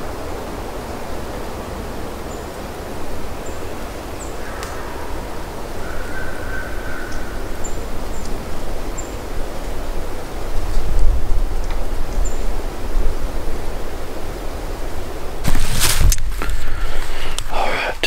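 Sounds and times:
steady rushing background noise: 0:00.0 - 0:18.0
turkey gobbling in the distance: 0:05.8 - 0:07.7.

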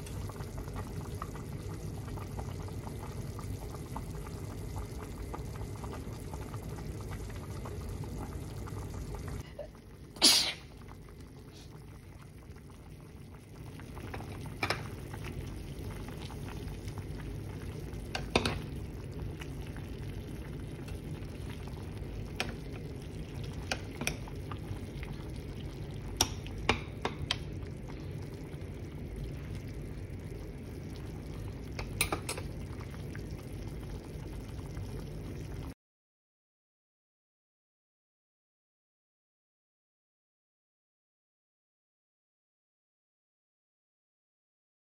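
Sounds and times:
soup bubbling in a pan: 0:00.0 - 0:35.8.

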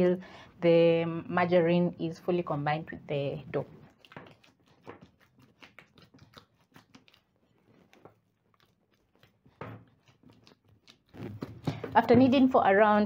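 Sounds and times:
dough squelching being kneaded: 0:00.0 - 0:13.0.

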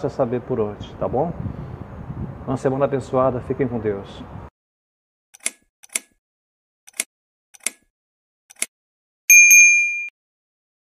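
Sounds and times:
mouse clicks: 0:08.5 - 0:08.7
notification bell ding: 0:09.3 - 0:10.1.

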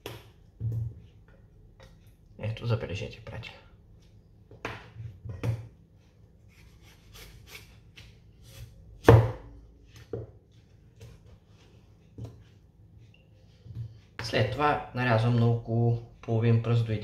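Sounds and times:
cleaver chopping on wooden board: 0:09.0 - 0:09.5.

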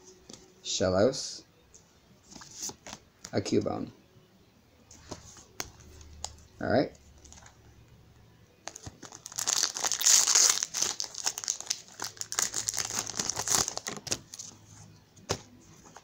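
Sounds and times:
foil wrapper crinkling and tearing: 0:08.7 - 0:14.4.

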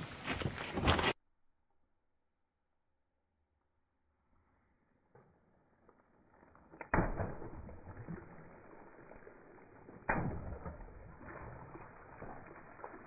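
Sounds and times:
water balloons popping: 0:06.7 - 0:13.0
water splashing on road: 0:06.9 - 0:13.0.

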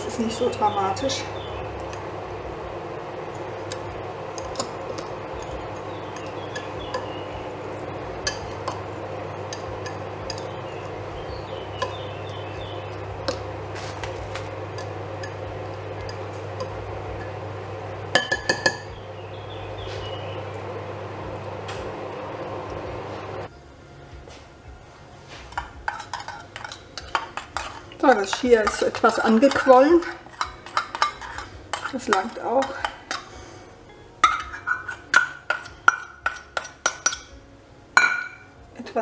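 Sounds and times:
steady low hum: 0:00.0 - 0:39.0
utensil stirring dry mixture in glass bowl: 0:25.5 - 0:33.3.

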